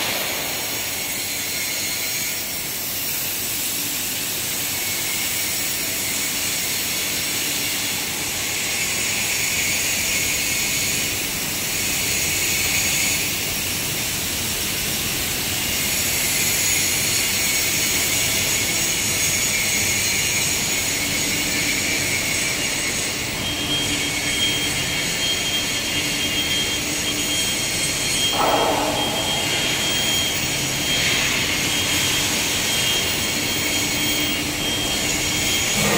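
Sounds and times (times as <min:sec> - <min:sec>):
factory hiss and hum: 0:00.0 - 0:35.9
faint high whistle: 0:23.4 - 0:35.9
low hum: 0:28.3 - 0:30.6.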